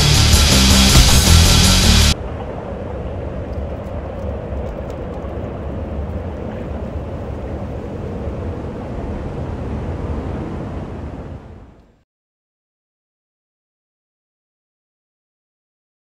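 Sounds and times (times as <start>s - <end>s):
constant low rumble: 0.0s - 12.0s.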